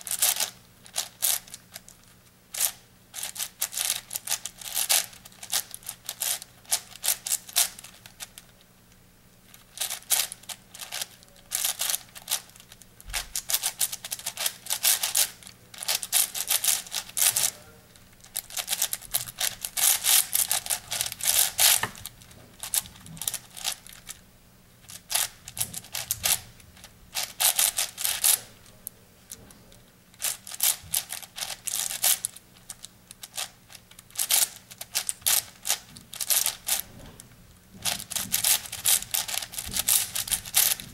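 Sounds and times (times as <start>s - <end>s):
puzzle cube clicking: 2.6s - 5.6s, 9.8s - 12.7s, 13.4s - 17.5s, 30.2s - 36.8s.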